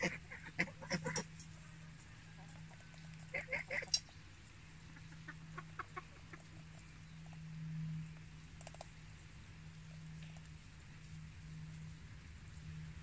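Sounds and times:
chickens clucking: 0:00.0 - 0:07.5
steady low hum: 0:00.0 - 0:13.0.

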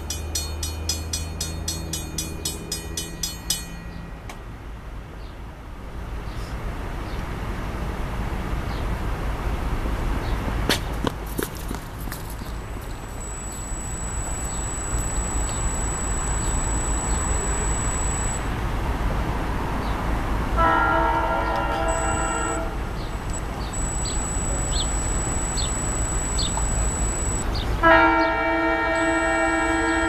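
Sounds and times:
electric train running noise: 0:00.0 - 0:04.4, 0:12.8 - 0:18.4, 0:21.8 - 0:27.4
train horn blasts: 0:20.6 - 0:22.8, 0:27.8 - 0:30.0.

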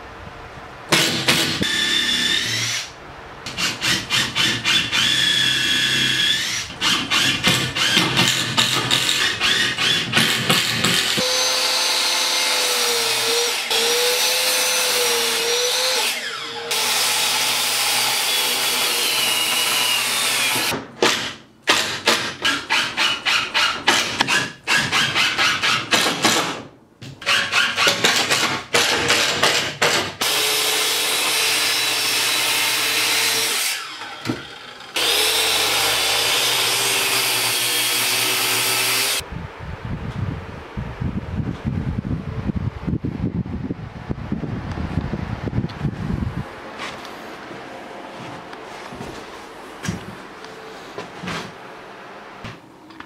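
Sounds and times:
mitre saw running: 0:03.5 - 0:20.7, 0:30.2 - 0:39.2.

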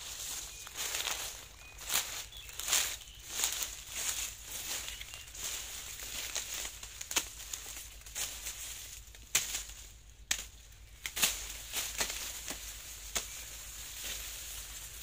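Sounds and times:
dry leaves rustling: 0:00.0 - 0:15.0
machete chopping sugarcane: 0:09.2 - 0:13.4.

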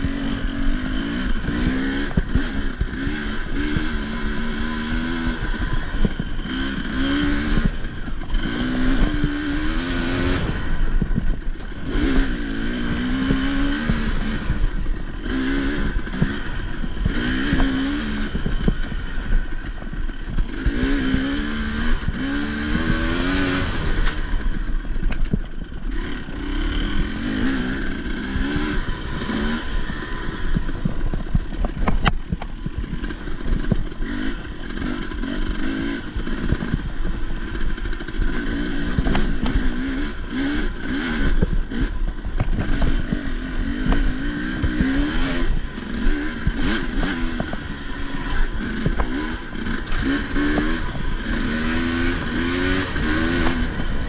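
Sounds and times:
dirt bike engine revving: 0:00.0 - 0:54.0
bike knocks and rattles: 0:28.4 - 0:37.1.

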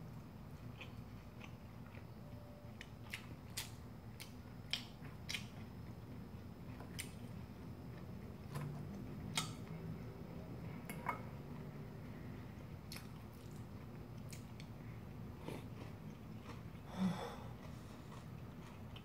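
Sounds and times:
mouth chewing pasta: 0:00.5 - 0:05.7, 0:12.6 - 0:19.0.

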